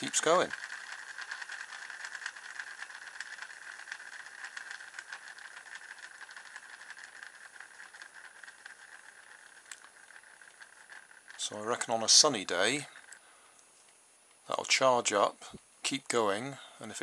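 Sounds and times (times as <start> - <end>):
toy car motor whirring: 0.0 - 13.3.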